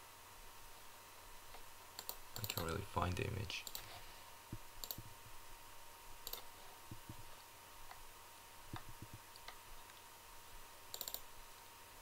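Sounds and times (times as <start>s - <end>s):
faint steady hum: 0.0s - 12.0s
computer mouse clicks: 1.5s - 2.8s, 3.6s - 5.1s, 6.2s - 7.2s, 8.7s - 10.0s, 10.9s - 11.3s.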